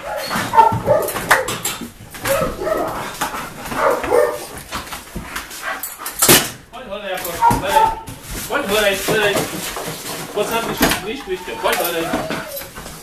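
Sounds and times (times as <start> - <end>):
dog whimpering and barking: 0.0 - 1.2, 2.2 - 2.9, 10.4 - 13.0.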